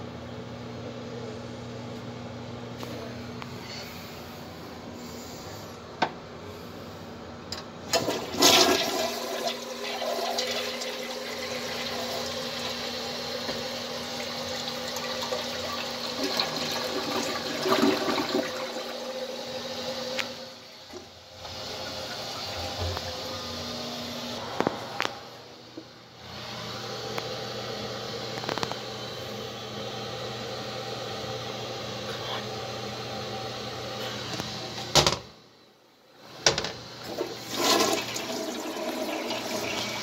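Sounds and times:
steady hum: 0.0 - 40.0
toilet flush water rushing: 7.9 - 20.6, 21.4 - 24.3, 37.0 - 40.0.

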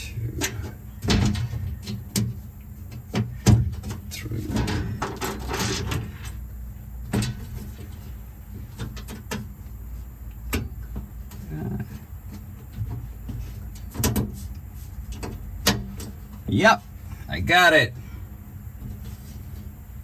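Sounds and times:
low steady hum: 0.0 - 20.0
metal sheet knocking and scraping: 3.1 - 6.3.

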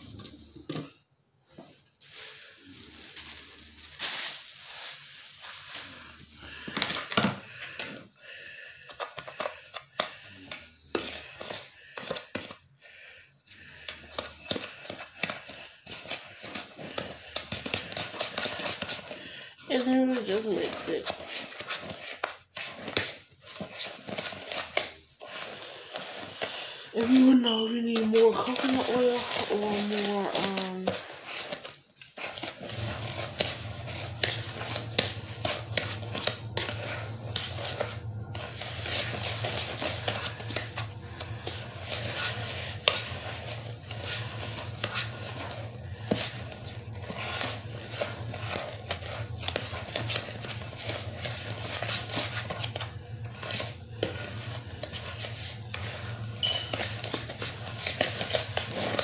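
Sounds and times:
utensil scraping gritty mix in bowl: 13.7 - 59.0
low steady hum: 32.1 - 59.0.

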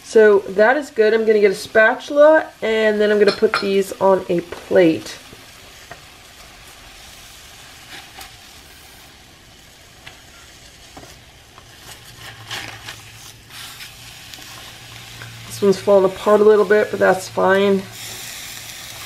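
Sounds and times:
fish sizzling on a griddle: 0.0 - 19.0
spatula scraping a griddle: 6.9 - 9.2, 10.1 - 19.0.

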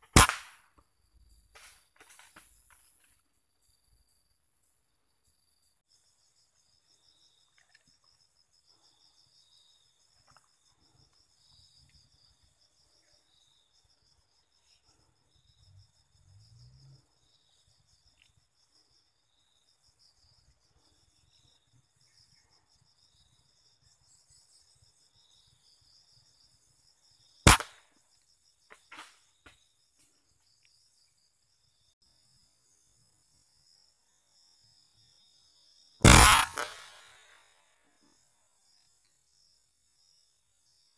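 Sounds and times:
air rifle shot: 0.0 - 0.6, 27.5 - 27.8, 36.0 - 37.2
steady insect tone: 0.0 - 40.9
insect trilling: 36.0 - 37.4.

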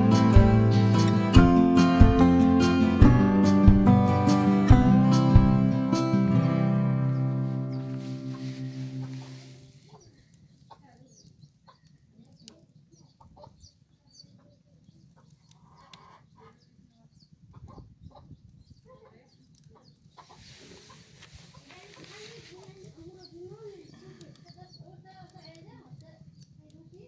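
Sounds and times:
twig fire crackling: 0.0 - 14.0, 19.4 - 27.0
birds chirping and clucking: 7.0 - 26.6.

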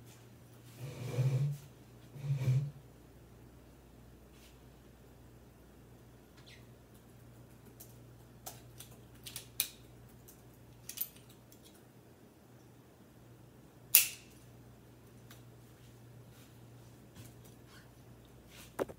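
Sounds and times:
sharp metallic snap: 13.9 - 14.4.

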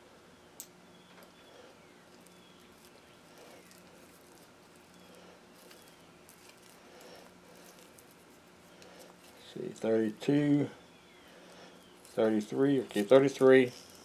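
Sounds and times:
faint low hum: 0.0 - 14.0
small click: 0.6 - 1.3.

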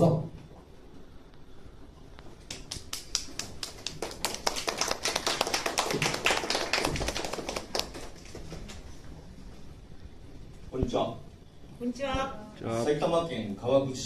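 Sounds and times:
small audience clapping: 2.4 - 8.8.

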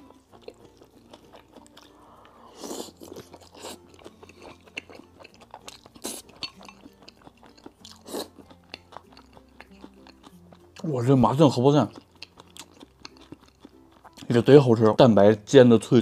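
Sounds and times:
chewing crunchy fried egg: 0.0 - 10.9, 11.7 - 14.6.

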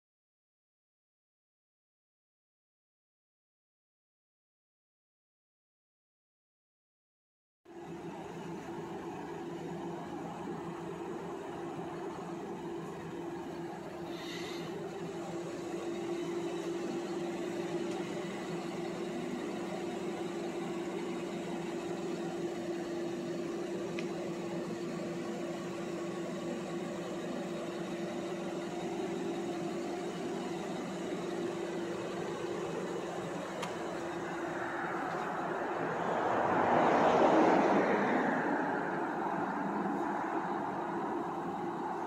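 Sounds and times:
car engine idling: 7.7 - 36.7, 37.6 - 42.0.

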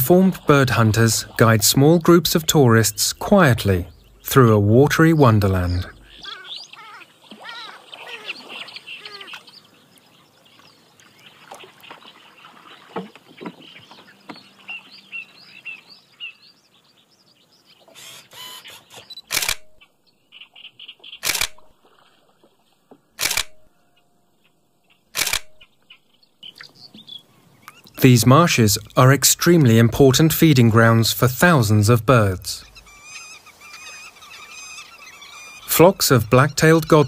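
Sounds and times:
birds chirping: 0.0 - 37.0
camera shutter bursts: 18.1 - 19.8, 21.2 - 21.6, 23.2 - 23.7, 25.2 - 25.6.

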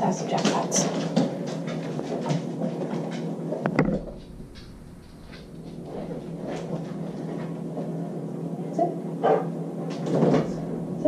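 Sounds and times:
dogs moving on kitchen floor: 0.0 - 8.1, 9.8 - 10.7
person moving about kitchen: 0.3 - 8.2.

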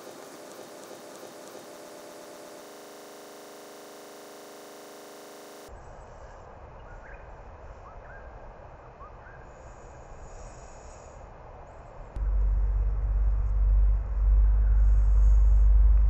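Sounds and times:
steady buzzing hum: 0.0 - 5.7, 12.0 - 16.0
low outdoor rumble: 11.2 - 16.0.

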